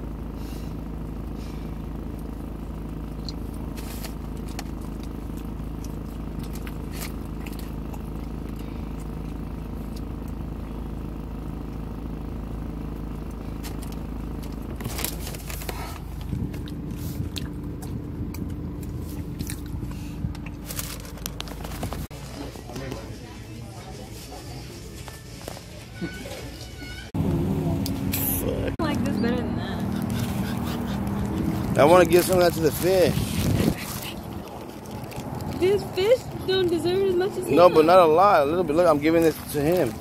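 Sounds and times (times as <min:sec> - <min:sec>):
car hum: 0:00.0 - 0:22.1, 0:26.7 - 0:40.0
chewing food close up: 0:03.0 - 0:10.6, 0:13.2 - 0:21.6, 0:29.9 - 0:36.0.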